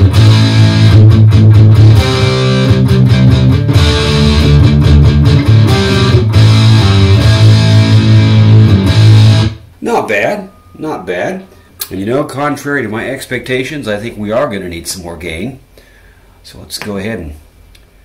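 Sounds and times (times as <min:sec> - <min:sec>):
distorted electric guitar riff: 0:00.0 - 0:09.7.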